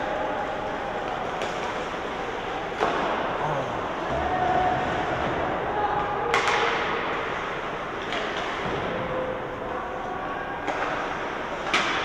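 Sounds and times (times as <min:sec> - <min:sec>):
reverberant rink din: 0:00.0 - 0:12.0
hockey sticks and puck knocking: 0:06.3 - 0:07.2, 0:08.0 - 0:09.0, 0:10.6 - 0:12.0.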